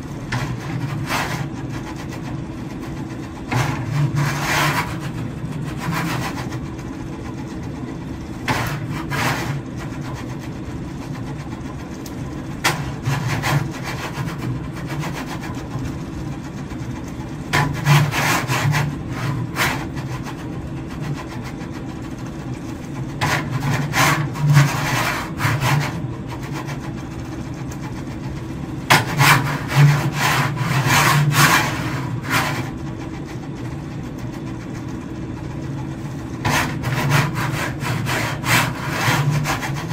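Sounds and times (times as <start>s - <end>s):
rasping rubbing of cart on rail: 0.0s - 11.4s, 12.4s - 33.2s, 36.3s - 39.9s
steady low motor hum: 0.0s - 39.9s.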